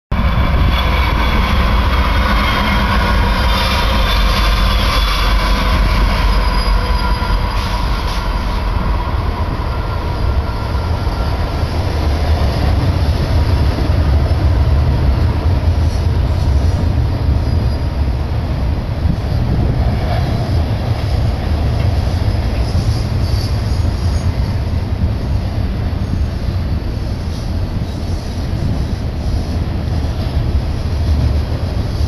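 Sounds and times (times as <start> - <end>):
train wheels clattering on rail: 0.1 - 32.0
high wheel squeal: 0.2 - 14.6, 15.8 - 18.2, 19.1 - 24.6.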